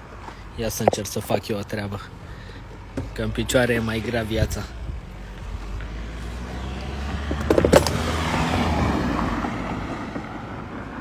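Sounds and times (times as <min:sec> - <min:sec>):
vehicle passing by: 0:03.3 - 0:11.0.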